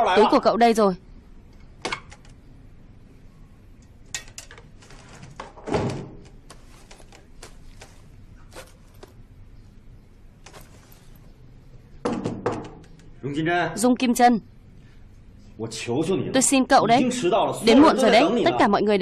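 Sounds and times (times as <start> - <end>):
cloth bag rustling: 6.4 - 9.2, 10.4 - 11.3.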